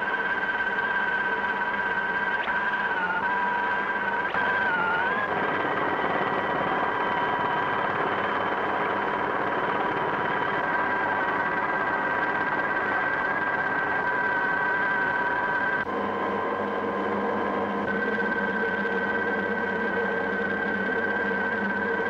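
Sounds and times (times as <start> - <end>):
helicopter turbine whining: 0.0 - 22.0.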